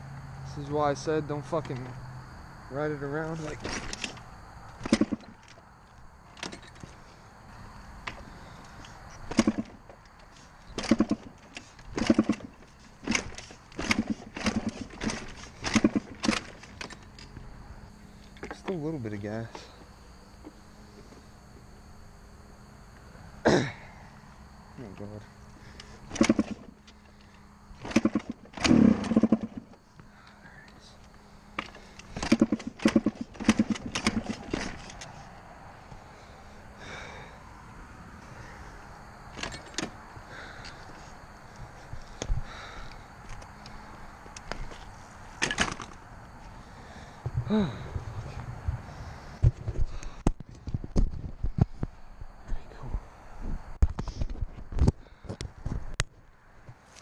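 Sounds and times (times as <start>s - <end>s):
dirt bike engine turning over: 2.8s - 7.1s, 8.0s - 17.5s, 25.6s - 30.2s, 31.0s - 35.2s, 39.3s - 51.9s.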